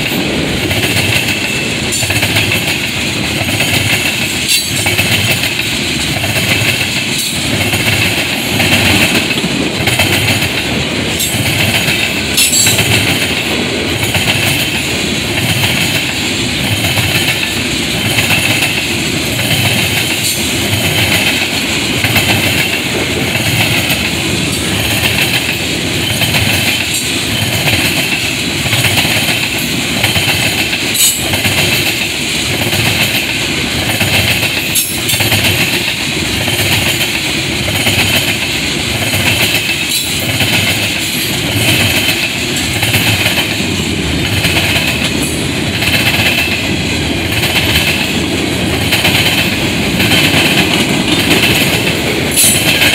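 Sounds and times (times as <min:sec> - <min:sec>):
clickety-clack over rail joints: 0:00.0 - 0:52.9
freight train wheels rumbling: 0:00.0 - 0:52.9
sharp metal clanks: 0:12.3 - 0:13.0.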